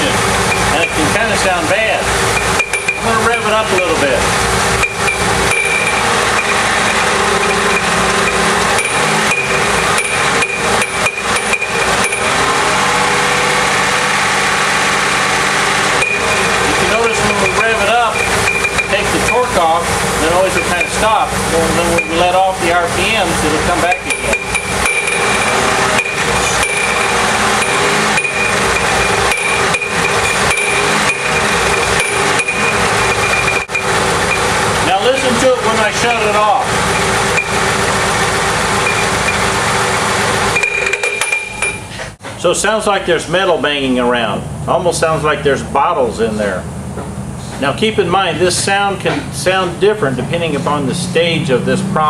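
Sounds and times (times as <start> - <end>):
car engine revving: 0.0 - 42.2
metallic knocking rattle: 2.2 - 12.4, 16.0 - 21.2, 23.1 - 34.6, 36.0 - 42.1.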